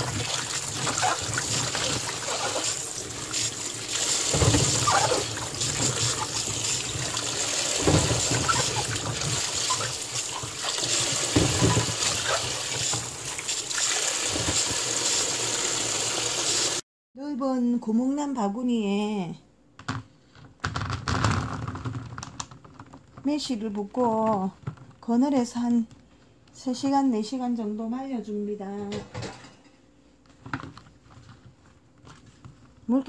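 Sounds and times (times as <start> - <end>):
hands swishing fruit in water: 0.0 - 14.7
water sloshing splashes: 0.0 - 14.7
tap running into basin: 0.0 - 16.8.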